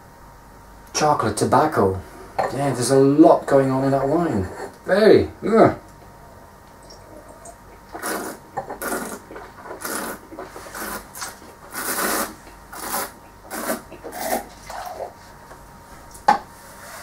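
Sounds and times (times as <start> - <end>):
rasping wine slurps: 6.9 - 15.2.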